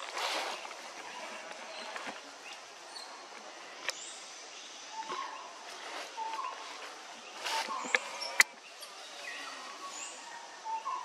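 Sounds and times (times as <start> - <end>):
high chirping calls: 3.9 - 11.0.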